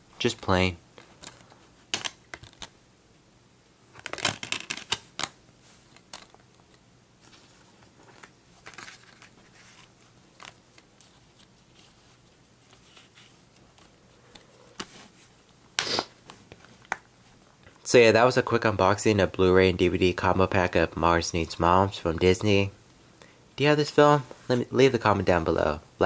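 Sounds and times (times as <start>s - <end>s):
plastic case clicking and rattling: 4.0s - 5.4s
paper insert rustling: 7.2s - 15.3s.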